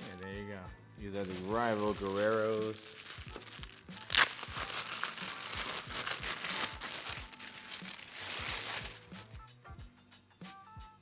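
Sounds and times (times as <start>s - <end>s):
plastic bag crinkling: 1.2s - 9.3s.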